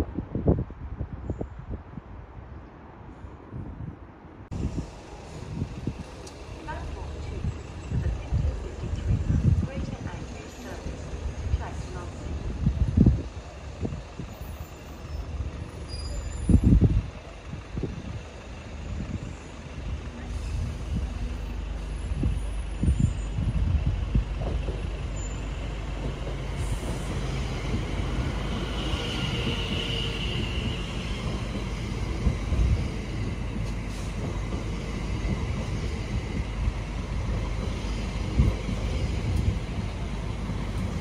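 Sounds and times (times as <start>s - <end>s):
train wheels rumbling on rail: 4.5s - 41.0s
train thumps: 23.6s - 25.2s.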